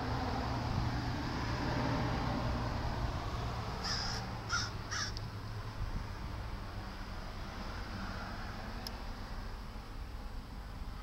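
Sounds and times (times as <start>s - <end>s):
harsh bird calls: 3.8s - 5.2s.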